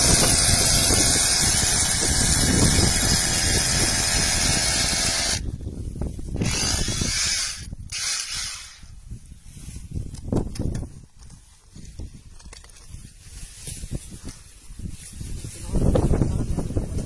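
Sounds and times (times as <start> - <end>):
rotary hammer drill boring into rock: 0.0 - 5.5, 6.4 - 9.0.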